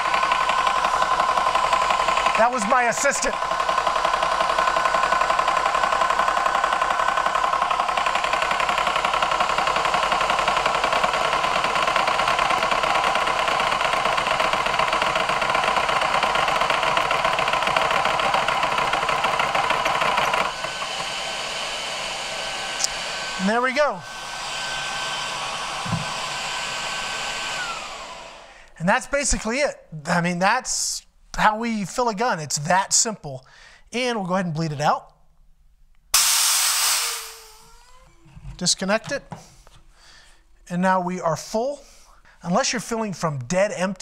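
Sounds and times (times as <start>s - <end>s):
air compressor pump running: 0.0s - 28.8s, 36.2s - 38.5s.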